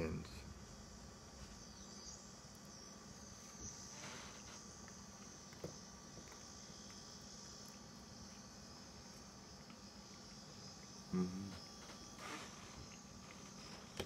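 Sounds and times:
faint high-pitched buzz: 0.0 - 14.0
man eating quietly: 0.0 - 14.0
man humming: 11.1 - 11.6.

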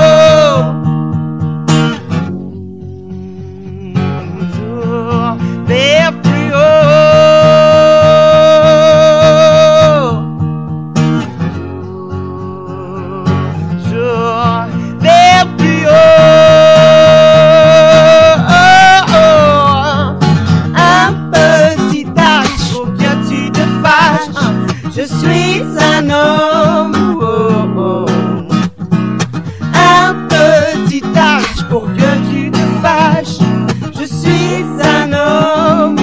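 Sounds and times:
acoustic guitar: 0.0 - 36.0
woman singing: 2.8 - 10.2, 20.8 - 28.6, 29.7 - 36.0.

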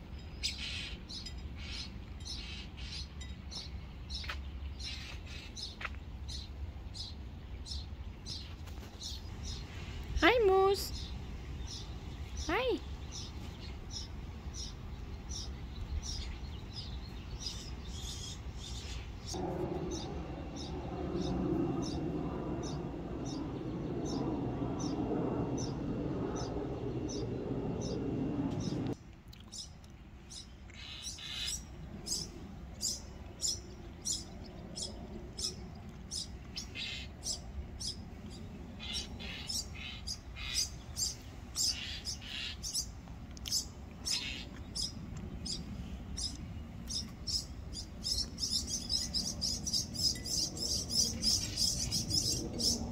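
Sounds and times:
songbirds chirping: 0.0 - 52.9
low rushing noise: 19.1 - 29.0.

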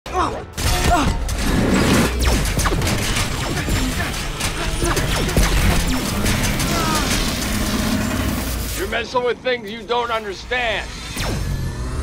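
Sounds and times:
film music: 0.1 - 12.0
crashes and sharp impacts: 0.6 - 9.0.

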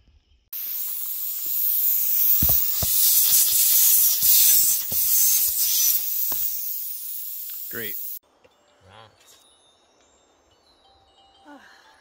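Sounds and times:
air hissing from tyre: 0.6 - 8.2.

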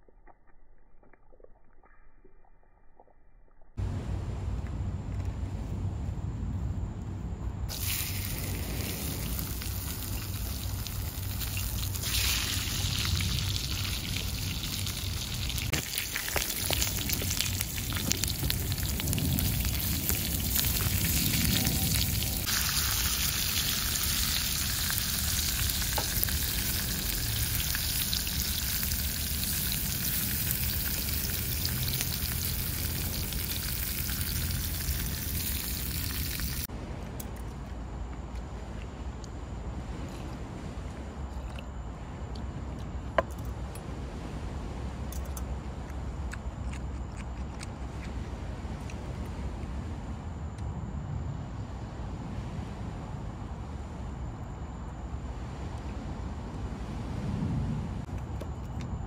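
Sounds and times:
peppers sizzling in grill pans: 7.7 - 36.7.

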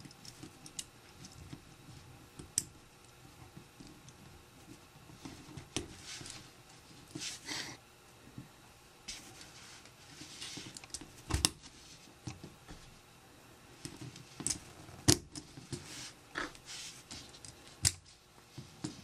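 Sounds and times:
soft handling noise: 3.1 - 7.5, 8.3 - 13.1, 13.7 - 19.0.

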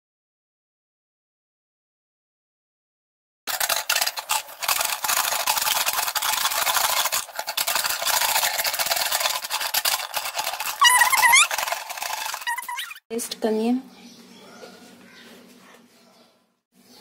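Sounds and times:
fried pasta rattling on a plate: 3.5 - 13.0.

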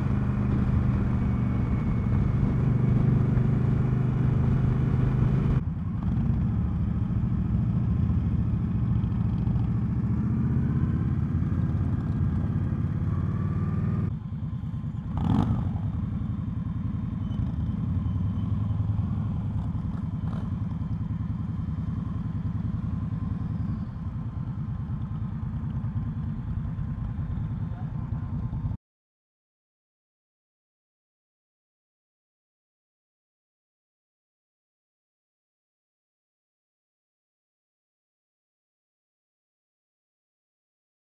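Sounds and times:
motorcycle engine running: 0.0 - 28.8.

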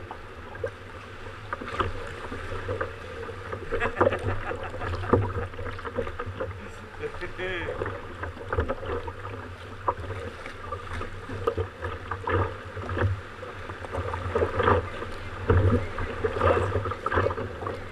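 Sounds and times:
water slapping against kayak hull: 0.0 - 17.9.

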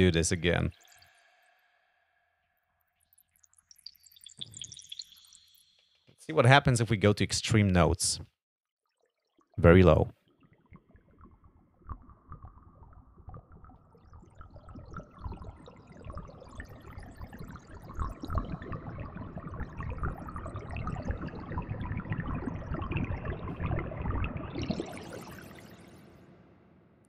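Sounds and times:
synthesized water bubbling: 3.1 - 5.7, 10.6 - 26.4.

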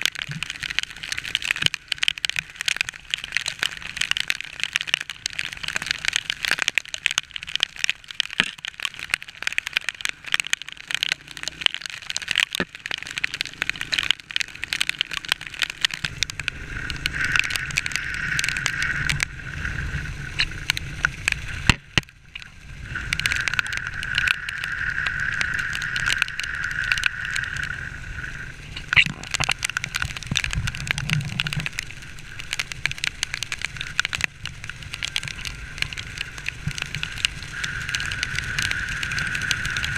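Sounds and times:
raindrops crackling on camera: 0.0 - 39.9
road noise with low rumble: 0.0 - 39.9
wind noise: 16.0 - 39.9.

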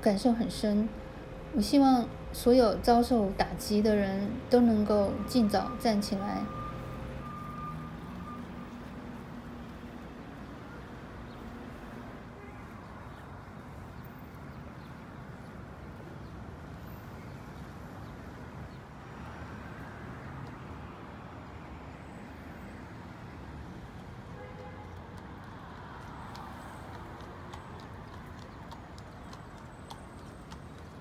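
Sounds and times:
city street traffic rumble: 0.0 - 31.0
horse hooves on pavement: 23.9 - 31.0.

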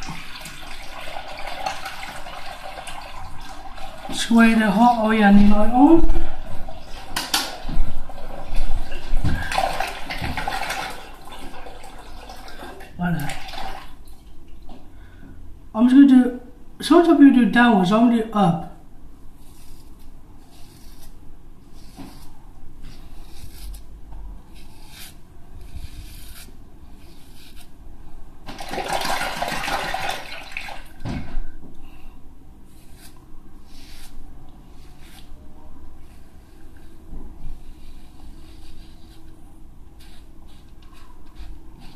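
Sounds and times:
water running: 0.0 - 14.8, 28.5 - 31.5
razor scraping through shaving foam: 23.0 - 23.8, 24.5 - 27.7.

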